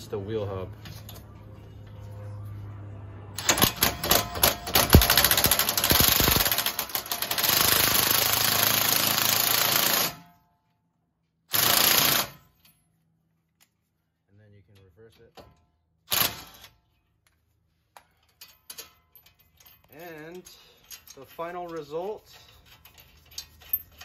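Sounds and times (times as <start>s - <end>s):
impact wrench hammering: 3.4s - 10.2s.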